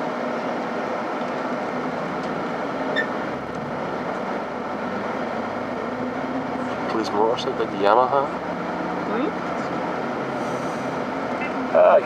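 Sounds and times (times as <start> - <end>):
road noise and engine hum: 0.0 - 12.0
short high squeak: 2.9 - 3.2.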